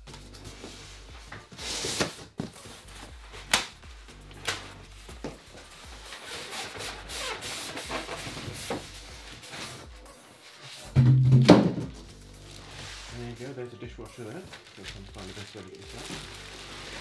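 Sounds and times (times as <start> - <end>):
box knocks: 11.0 - 12.0.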